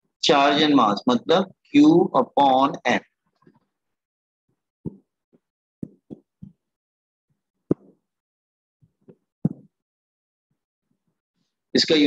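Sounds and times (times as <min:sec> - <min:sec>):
pen tapping tablet screen: 0:04.9 - 0:06.6, 0:07.7 - 0:08.0, 0:08.9 - 0:09.8.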